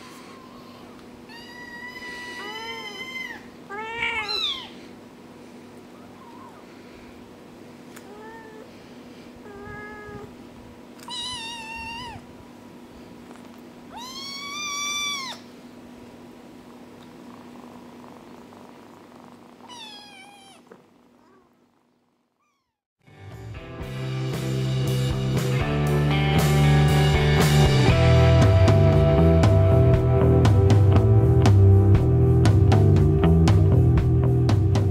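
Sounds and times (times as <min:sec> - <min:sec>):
steady low hum: 0:00.0 - 0:22.4
kitten meowing: 0:00.1 - 0:04.8, 0:11.0 - 0:12.3, 0:13.9 - 0:15.5, 0:19.6 - 0:21.5, 0:22.4 - 0:22.8
loud music: 0:23.1 - 0:34.9.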